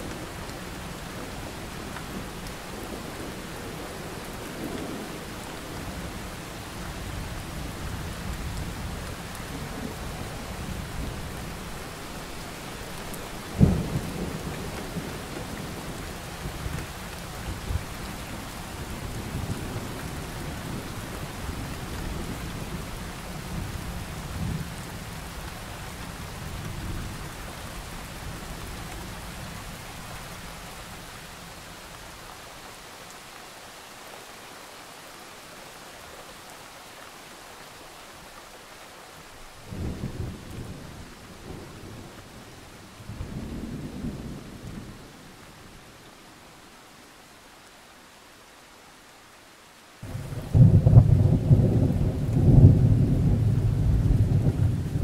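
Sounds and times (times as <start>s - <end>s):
steady rain: 0.0s - 55.0s
low rolling thunder: 50.0s - 55.0s
sharp thunderclap: 50.0s - 55.0s.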